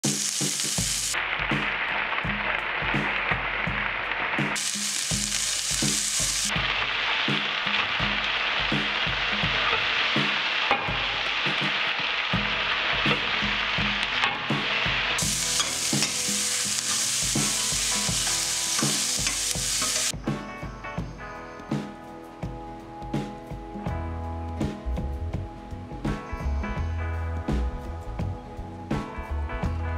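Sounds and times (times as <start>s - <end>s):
vegetables sizzling in oil: 0.0s - 20.1s
ladle stirring in wok: 15.2s - 20.1s.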